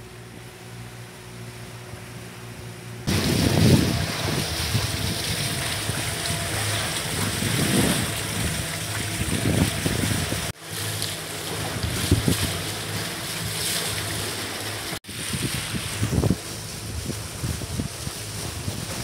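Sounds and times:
water splashing along hull: 0:00.0 - 0:19.0
wind buffeting microphone: 0:03.0 - 0:10.6, 0:11.6 - 0:13.6, 0:15.0 - 0:19.0.

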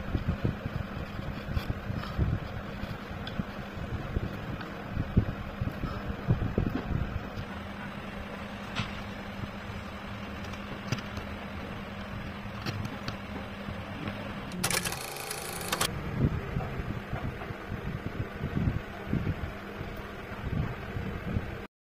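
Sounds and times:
low hum and rumble: 0:00.0 - 0:21.7.

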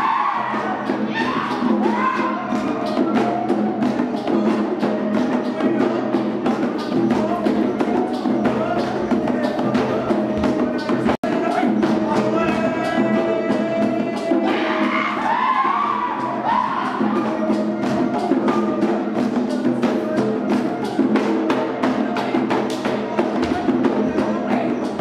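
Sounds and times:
barrel drums beating fast: 0:00.0 - 0:25.0.

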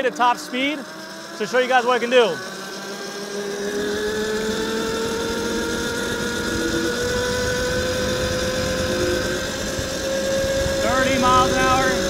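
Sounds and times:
electric motorbike motor whining: 0:00.0 - 0:12.0
low wind rumble: 0:04.0 - 0:12.0.

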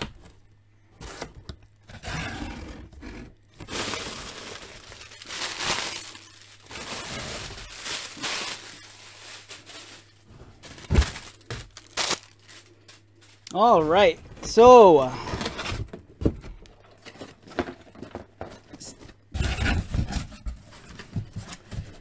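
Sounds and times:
plastic air pillows crinkling: 0:03.5 - 0:15.5.

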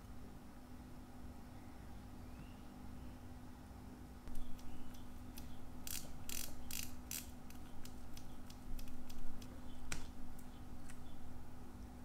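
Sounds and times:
pocket watch mechanical clicks: 0:04.5 - 0:09.5.

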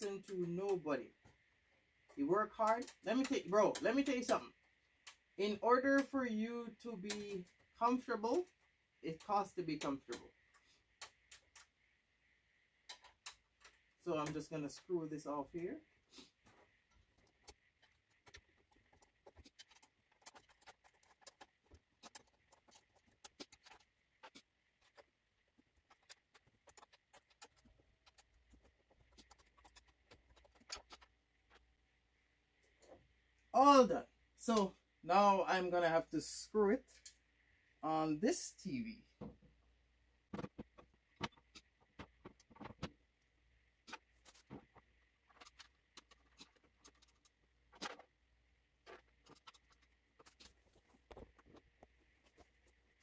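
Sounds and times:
small metal clicks and rattles: 0:08.3 - 0:11.9, 0:12.8 - 0:14.9, 0:16.4 - 0:31.6, 0:43.8 - 0:48.2, 0:48.8 - 0:53.0.

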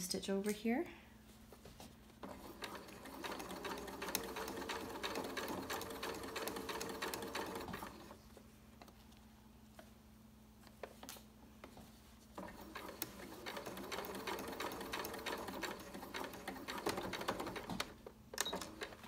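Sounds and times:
sewing machine running: 0:02.2 - 0:08.2, 0:12.4 - 0:19.0.

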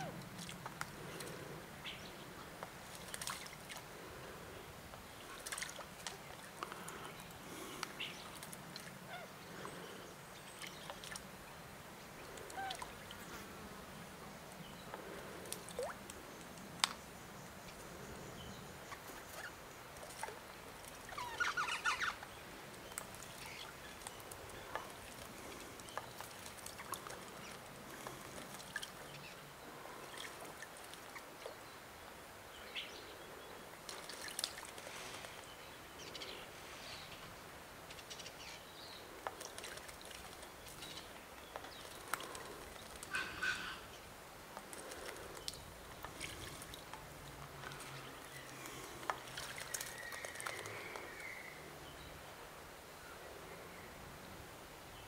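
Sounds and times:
bird splashing in water: 0:02.3 - 0:04.3, 0:05.2 - 0:09.8, 0:10.6 - 0:11.4, 0:19.0 - 0:29.2, 0:33.8 - 0:35.5, 0:39.2 - 0:40.9, 0:41.5 - 0:44.0, 0:44.6 - 0:51.2.

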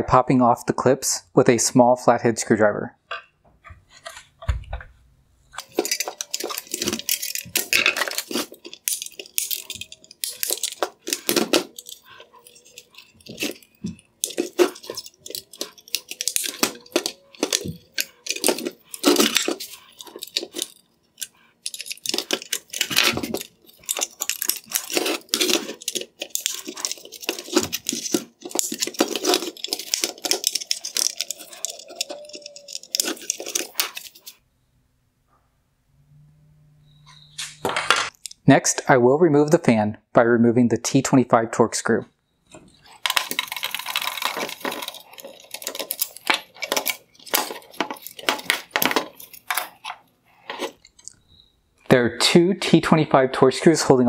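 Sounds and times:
plastic parts knocking: 0:03.1 - 0:34.4, 0:42.5 - 0:51.2.

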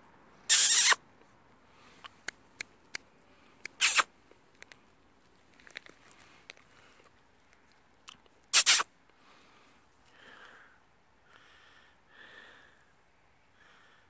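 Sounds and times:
loud noise burst on microphone: 0:00.5 - 0:01.0, 0:08.5 - 0:08.9.

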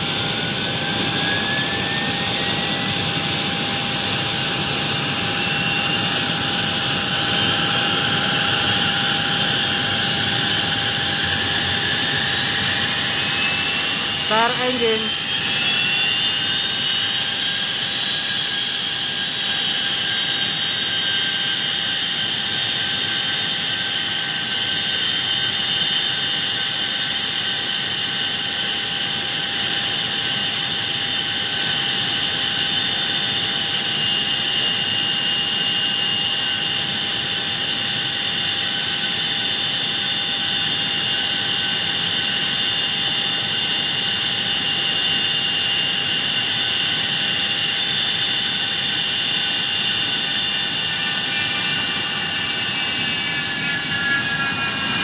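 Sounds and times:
jet engines whining: 0:00.0 - 0:23.9, 0:36.3 - 0:55.0.

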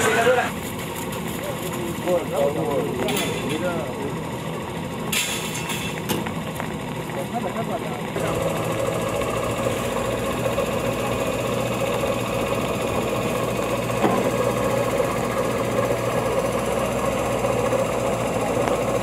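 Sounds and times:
motor humming: 0:06.0 - 0:19.0.

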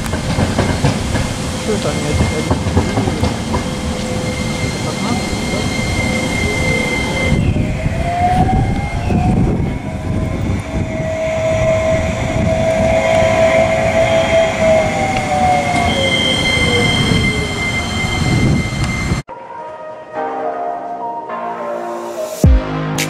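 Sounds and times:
tram motor whine: 0:00.0 - 0:19.3
wheels rumbling on rail: 0:00.0 - 0:19.3
high-pitched squeal: 0:01.4 - 0:19.3.

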